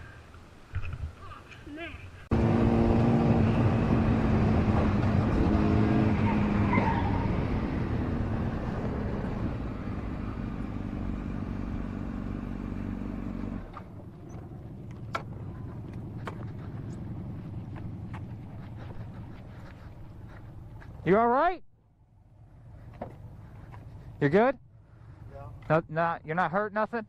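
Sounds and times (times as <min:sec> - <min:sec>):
wind and road noise: 0:00.0 - 0:27.0
motorcycle engine running: 0:07.4 - 0:21.1.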